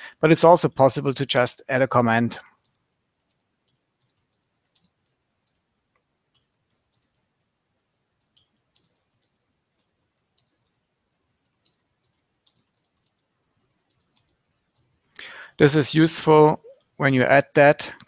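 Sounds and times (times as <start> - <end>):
faint keyboard typing clicks: 2.4 - 15.5.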